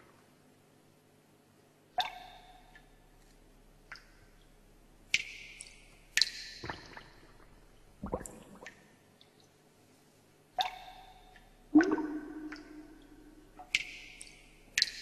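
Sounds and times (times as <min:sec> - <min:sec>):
electronic plinks and plops: 0:11.7 - 0:13.0.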